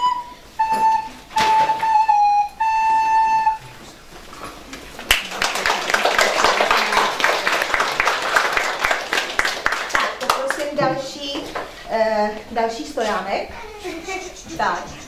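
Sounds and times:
recorder playing tune: 0.0s - 4.0s
audience applauding: 4.7s - 10.8s.

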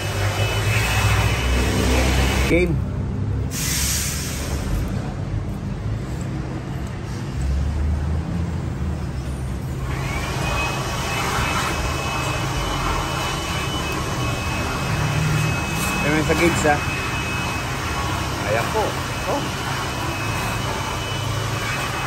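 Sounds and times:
compressed air hissing: 3.5s - 4.9s.

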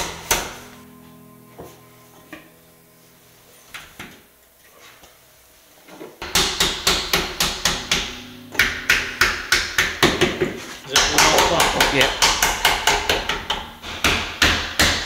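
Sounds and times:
hammer tapping wood: 6.2s - 15.0s.

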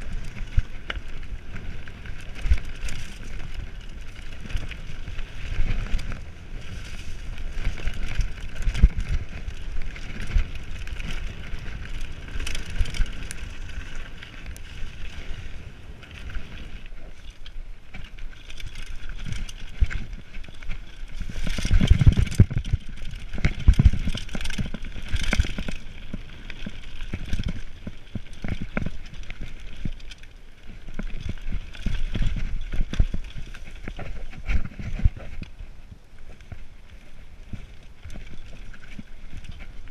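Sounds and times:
wind on microphone: 0.0s - 17.2s, 18.9s - 30.0s
bike rattling and knocking: 0.0s - 35.6s, 36.2s - 39.9s
bike tyres rolling on dirt: 0.0s - 39.9s.

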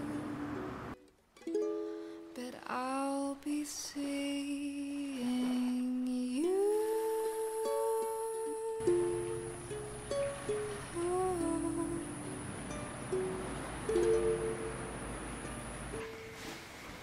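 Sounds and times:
ukulele song: 0.0s - 17.0s.

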